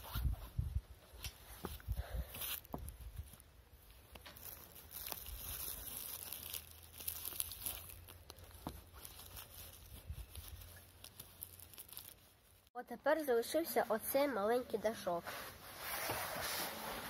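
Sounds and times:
fabric canopy rustling: 2.5 - 12.8, 15.0 - 17.0.

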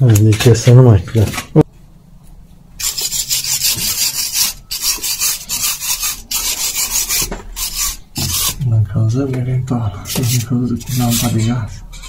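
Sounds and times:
rasping scraping against metal: 2.8 - 8.7, 10.0 - 12.0.

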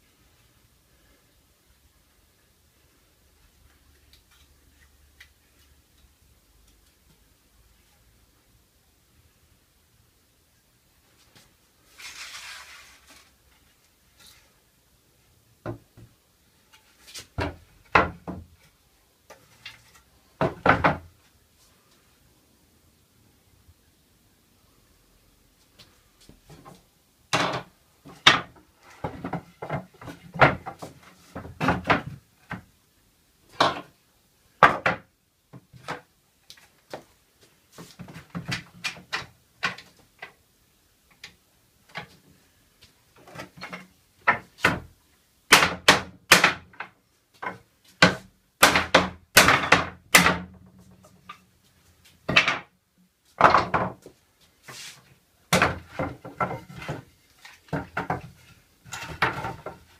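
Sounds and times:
wooden slats knocking and clattering: 17.2 - 18.6, 19.3 - 21.1, 26.5 - 32.7, 33.5 - 33.9, 34.6 - 36.1, 37.8 - 40.3, 43.2 - 44.9, 45.5 - 51.4, 52.2 - 52.7, 53.4 - 54.1, 55.5 - 59.9.

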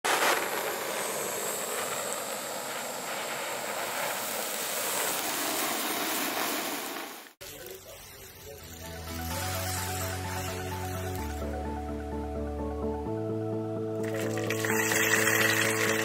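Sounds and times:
sparkler fizzing: 0.1 - 11.4, 14.0 - 16.0
torch flame hissing: 0.1 - 11.4.

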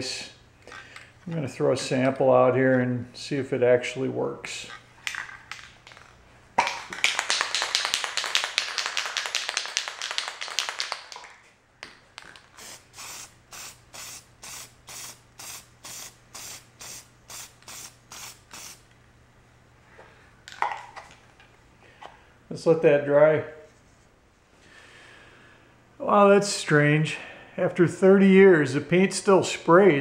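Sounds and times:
aerosol spray hissing: 12.6 - 18.8
short aerosol spray bursts: 12.6 - 18.8.

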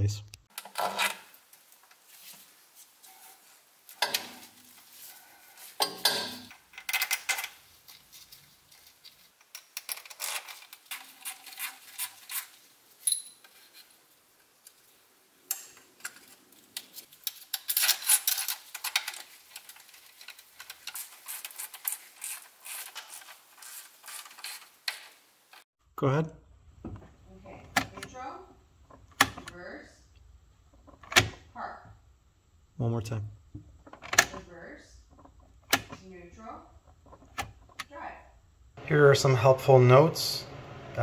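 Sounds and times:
metal clinks: 13.0 - 13.5.

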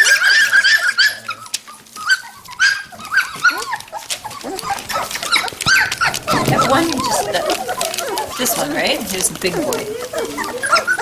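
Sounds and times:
puppies whimpering and yipping: 0.0 - 11.0.

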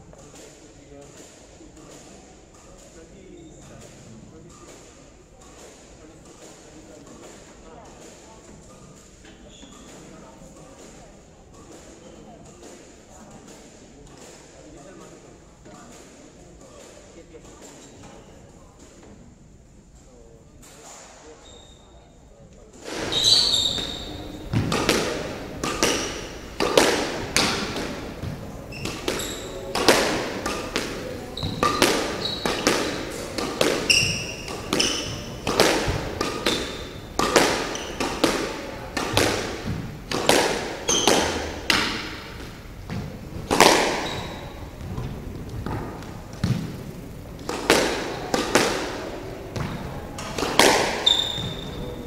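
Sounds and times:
shoes squeaking on wooden floor: 9.4 - 10.1, 22.8 - 47.0, 49.5 - 52.0
squash ball hits ringing: 22.9 - 46.8, 47.4 - 52.0.

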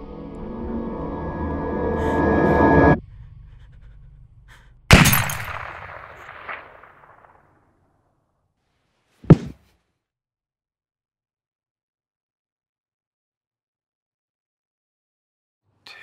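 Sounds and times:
gunshot with long echo: 4.9 - 7.5
body falling to the floor: 9.2 - 9.6.

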